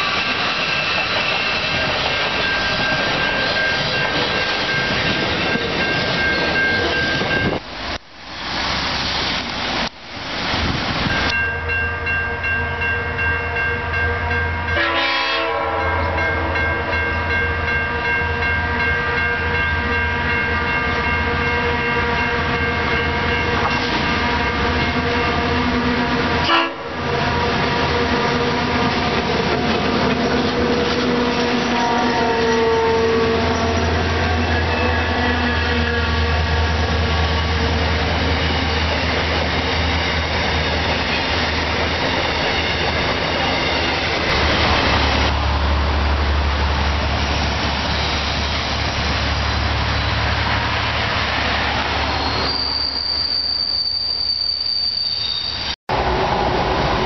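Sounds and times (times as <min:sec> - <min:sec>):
freight train rattling: 0:00.0 - 0:11.3, 0:14.7 - 0:54.3
diesel locomotive drone: 0:00.0 - 0:57.0.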